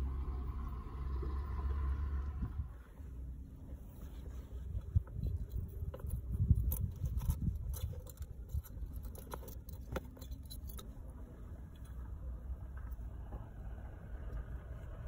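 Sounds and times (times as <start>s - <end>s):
low rumble: 0.0s - 7.7s.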